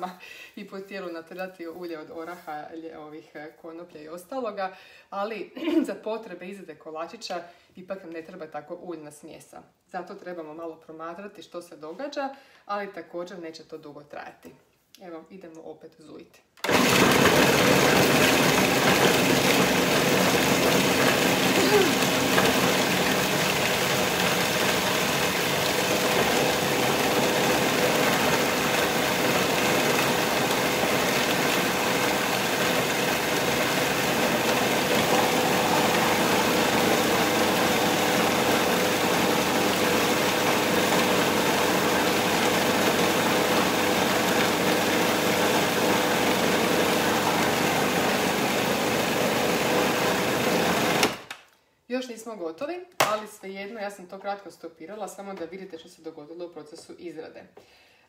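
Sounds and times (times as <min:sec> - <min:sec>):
food processor running: 0:16.6 - 0:51.3.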